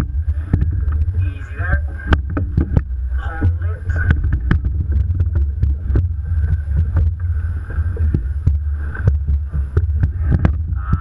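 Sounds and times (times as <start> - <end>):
water lapping against boat hull: 0.0 - 11.0
wind buffeting microphone: 0.0 - 11.0.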